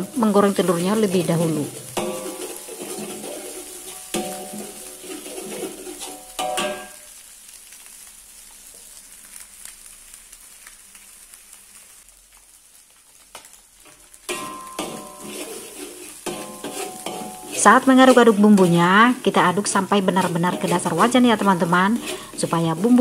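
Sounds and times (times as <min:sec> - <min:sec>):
food sizzling in oil: 0:00.0 - 0:23.0
spatula scraping metal wok: 0:00.1 - 0:07.0, 0:13.4 - 0:23.0.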